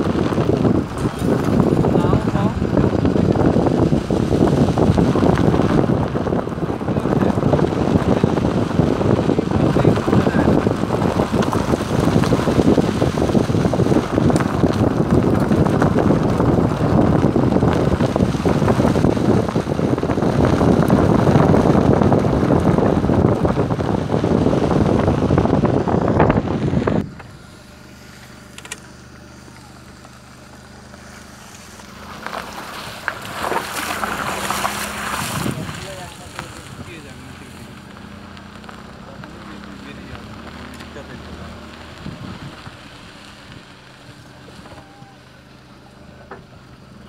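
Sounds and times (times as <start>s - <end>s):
car road noise on dirt track: 0.0s - 47.0s
wind buffeting microphone: 0.0s - 47.0s.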